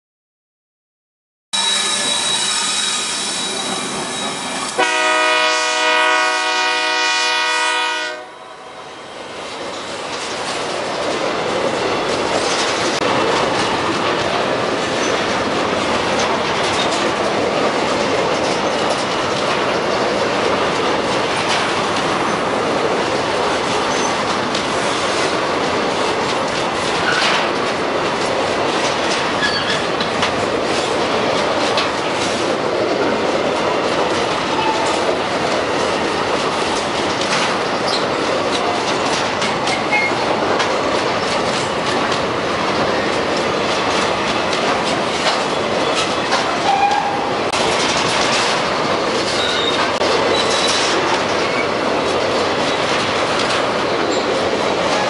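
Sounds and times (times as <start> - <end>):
diesel locomotives passing: 1.6 - 55.0
multi-note train horn: 4.7 - 9.0
train wheel clatter: 9.3 - 55.0.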